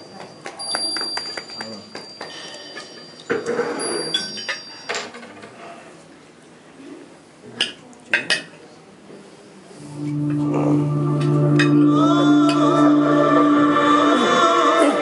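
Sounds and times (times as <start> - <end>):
music with low drone over loudspeakers: 9.9 - 15.0.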